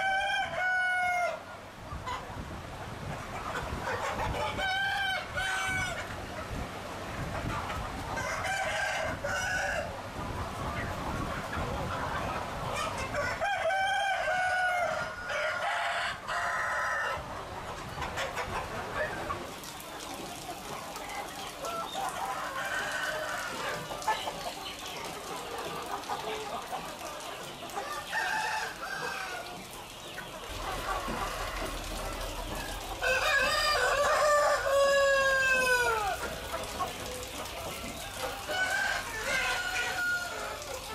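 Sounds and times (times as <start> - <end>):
roosters crowing: 0.0 - 1.5, 8.2 - 10.0, 13.1 - 17.3, 21.8 - 24.1, 27.8 - 29.7, 30.4 - 36.7, 37.7 - 40.9
chickens clucking: 0.0 - 40.9.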